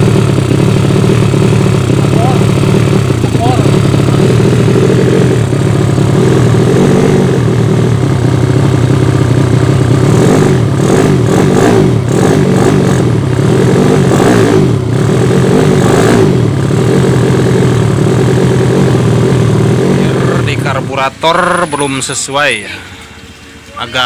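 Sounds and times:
motorcycle engine running loud: 0.0 - 21.9.

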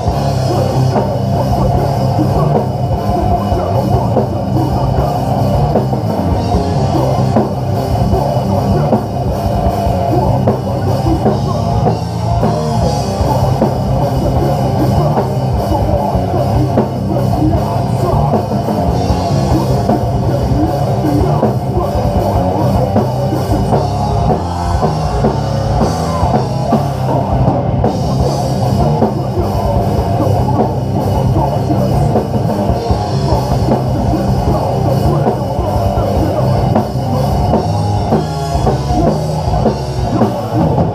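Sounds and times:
distorted electric guitars: 0.0 - 40.9.

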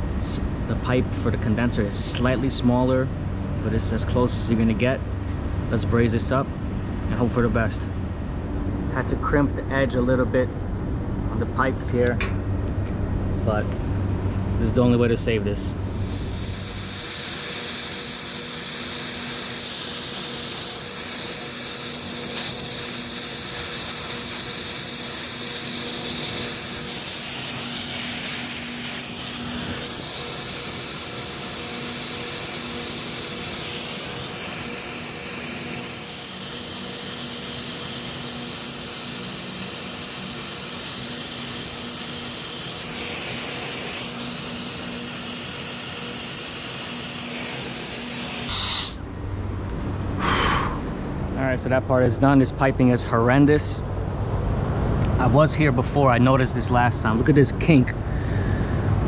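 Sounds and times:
brazing torch hissing: 15.7 - 49.1.

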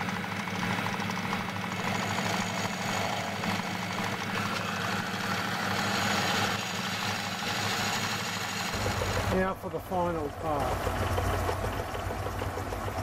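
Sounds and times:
metal lathe humming: 0.0 - 13.0
cutter machining aluminium: 1.8 - 11.2.

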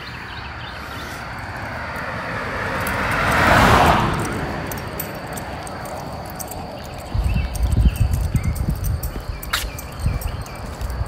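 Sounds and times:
car passing by: 0.0 - 6.5.

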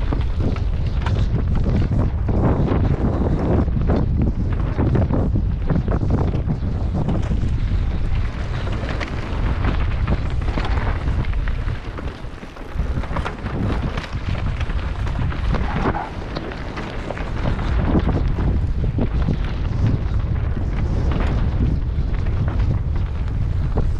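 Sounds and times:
wind buffeting microphone: 0.0 - 23.9
bike clattering over rocks: 7.0 - 19.8.

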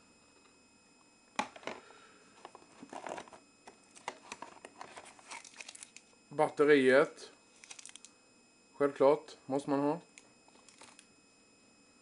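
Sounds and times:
cardboard packaging clicks and rustles: 2.4 - 6.0, 7.6 - 8.1, 10.5 - 11.0.

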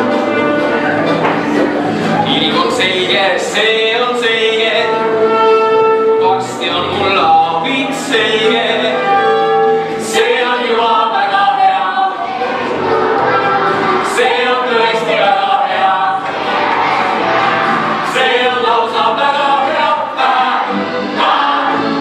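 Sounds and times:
instrumental accompaniment: 0.0 - 22.0
voices singing long notes: 2.2 - 22.0.

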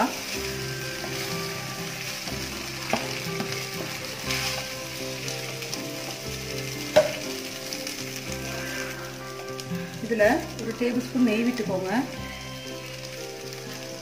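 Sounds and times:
background music: 0.0 - 14.0
rice flakes sizzling in a pan: 0.0 - 14.0
sharp knocks on pan: 7.0 - 7.2.

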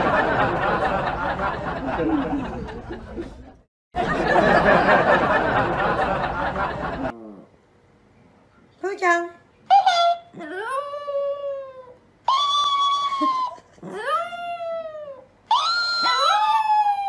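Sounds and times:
crowd laughing: 0.0 - 7.1.

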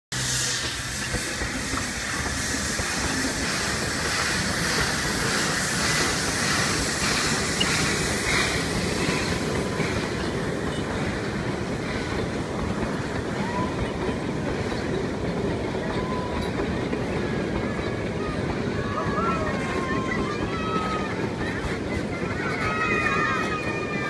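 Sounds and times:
train wheels rumbling and clattering: 0.1 - 24.0.

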